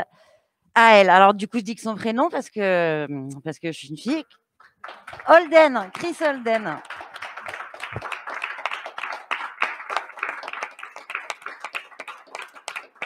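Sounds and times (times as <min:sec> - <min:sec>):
people applauding: 0:04.6 - 0:13.0.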